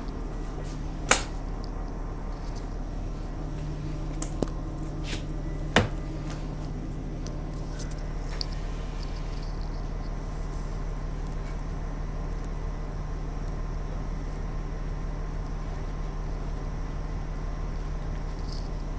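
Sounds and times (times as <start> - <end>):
bus engine hum: 0.0 - 9.3.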